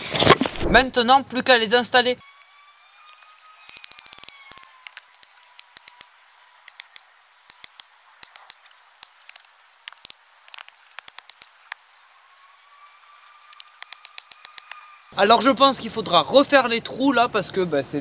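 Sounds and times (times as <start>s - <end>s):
wooden stake knocking: 3.7s - 11.8s, 13.5s - 14.8s.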